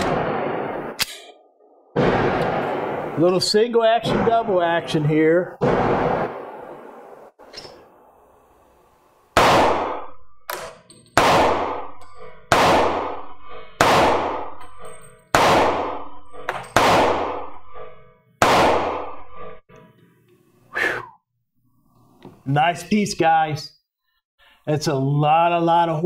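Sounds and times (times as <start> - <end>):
pistol shots echoing: 9.4 - 19.3.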